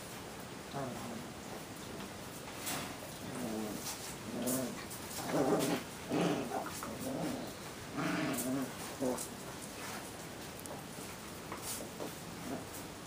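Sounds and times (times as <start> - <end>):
puppies growling and whining: 3.2 - 9.3.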